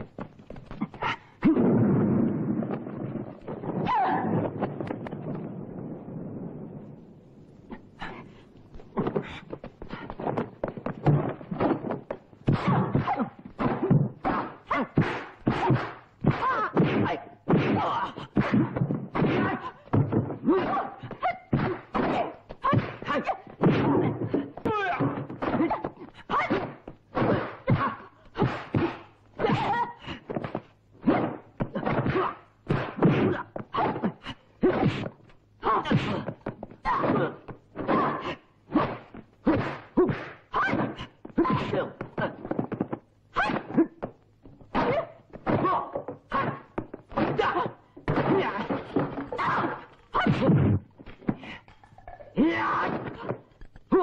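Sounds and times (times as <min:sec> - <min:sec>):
punch and kick impacts: 0:10.2 - 0:35.2, 0:44.7 - 0:50.9
fighters shouting and grunting: 0:31.0 - 0:42.5, 0:44.7 - 0:50.6.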